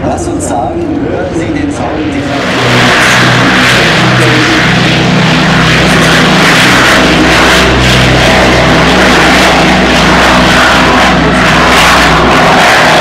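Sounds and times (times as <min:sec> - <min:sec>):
propeller plane engines drone: 0:00.0 - 0:13.0.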